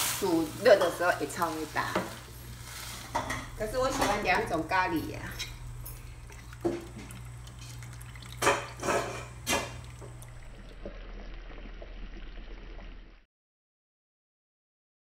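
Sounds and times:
low hum with faint pops: 3.1s - 13.2s
food splashing into broth: 6.6s - 11.3s.

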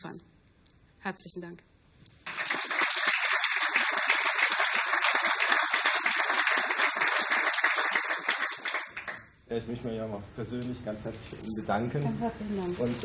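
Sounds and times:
audience applause: 2.3s - 9.3s.

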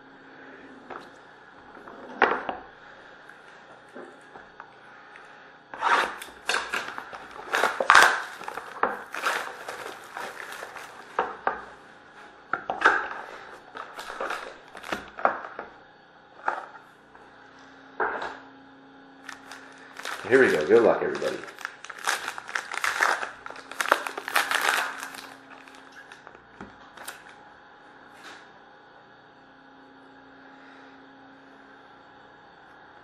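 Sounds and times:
cardboard box crinkling and scraping: 5.9s - 11.0s, 19.3s - 26.2s
foil card pack crinkling: 6.0s - 11.2s, 13.7s - 15.4s, 19.2s - 26.3s.

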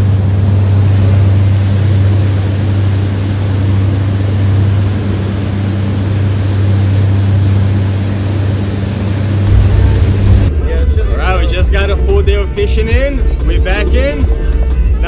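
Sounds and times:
water rushing from wake: 0.0s - 10.5s
motorboat engine humming: 0.0s - 14.9s.

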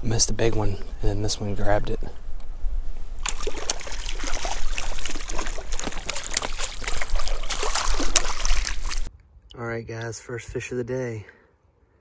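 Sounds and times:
fish splashing at water surface: 3.2s - 9.1s.

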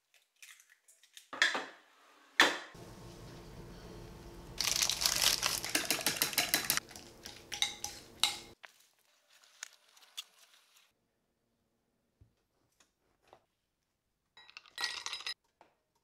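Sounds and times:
steady hum: 2.8s - 5.8s
dishes clattering and scraping: 5.6s - 8.6s.

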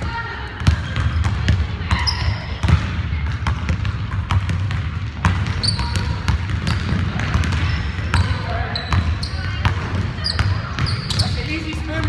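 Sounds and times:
basketball bouncing on wooden floor: 0.6s - 12.0s
sneaker squeaks: 0.7s - 2.7s, 5.4s - 12.0s.

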